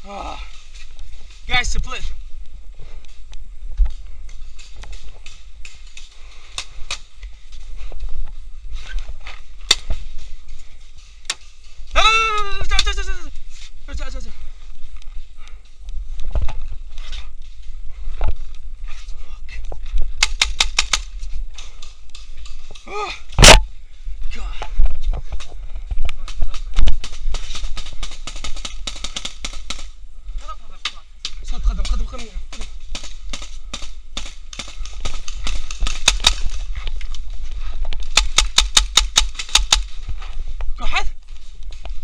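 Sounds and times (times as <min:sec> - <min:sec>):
wind and handling rumble: 0:00.0 - 0:42.0
paintball markers firing: 0:20.2 - 0:22.2, 0:27.0 - 0:29.9, 0:30.9 - 0:36.6, 0:38.0 - 0:40.0.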